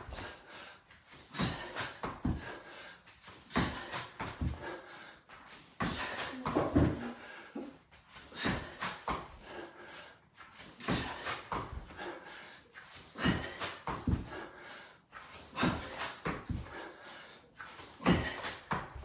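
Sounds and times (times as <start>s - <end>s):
man breathing hard: 0.0s - 19.0s
dull bumps on exercise mat: 5.8s - 7.1s.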